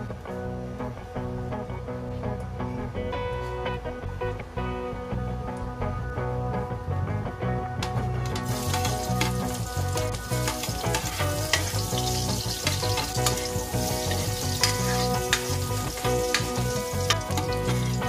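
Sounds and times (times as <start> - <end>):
metal spatula scraping wok: 8.4 - 18.0
onion sizzling in hot oil: 8.4 - 18.0.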